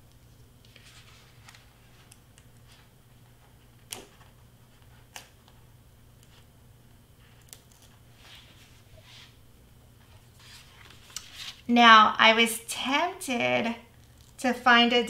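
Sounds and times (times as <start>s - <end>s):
faint steady hum: 0.0s - 15.0s
cardstock rustling: 10.1s - 11.7s.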